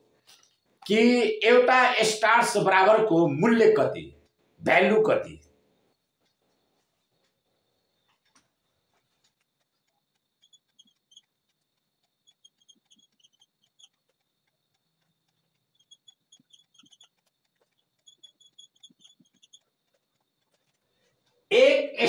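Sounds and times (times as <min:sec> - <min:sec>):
marker squeaking on whiteboard: 0:08.0 - 0:22.0.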